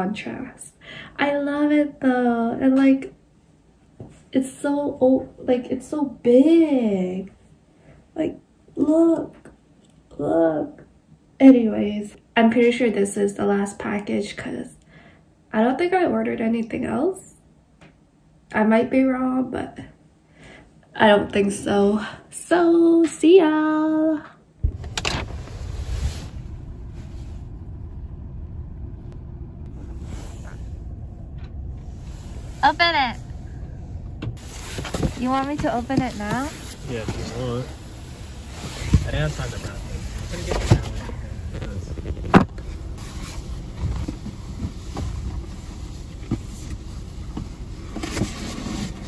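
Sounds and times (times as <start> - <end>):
steady low rumble: 24.5 - 48.0
car engine running inside cabin: 24.6 - 48.0.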